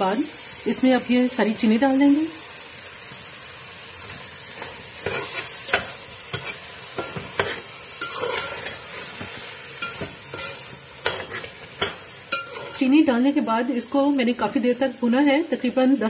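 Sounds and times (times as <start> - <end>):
carrots sizzling in oil: 0.0 - 16.0
metal spoon scraping a pot: 4.6 - 12.9.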